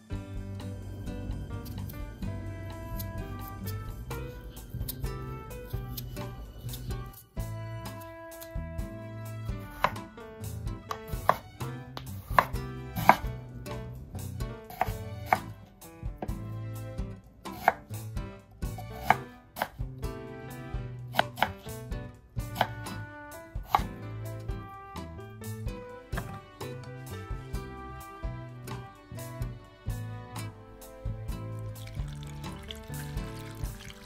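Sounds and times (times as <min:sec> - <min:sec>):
soft background music: 0:00.0 - 0:34.0
knife striking cutting board: 0:10.9 - 0:13.3.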